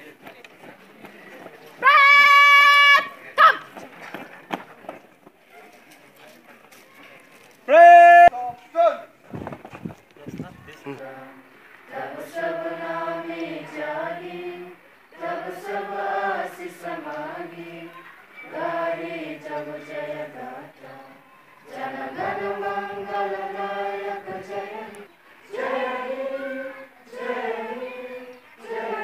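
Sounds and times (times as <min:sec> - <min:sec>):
children singing in unison: 0:11.0 - 0:29.0.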